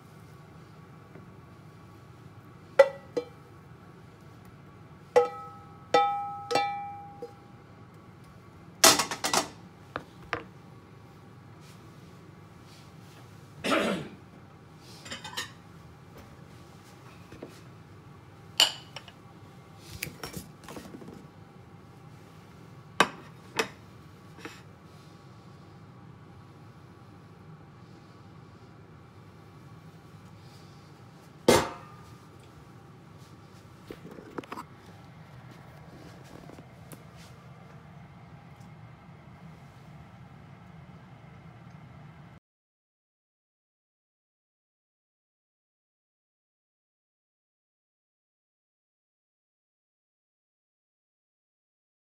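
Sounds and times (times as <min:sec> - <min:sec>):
utensils clinking on pan and bowl: 0:02.8 - 0:03.4, 0:05.2 - 0:07.4, 0:15.0 - 0:15.6, 0:18.6 - 0:19.2.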